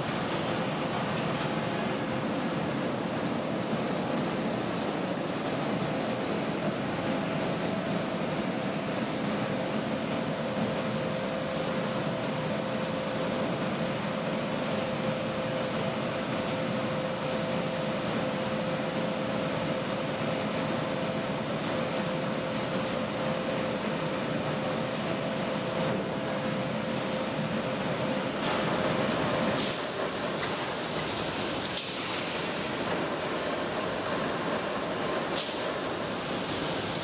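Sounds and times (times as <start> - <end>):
constant industrial rushing noise: 0.0 - 37.0.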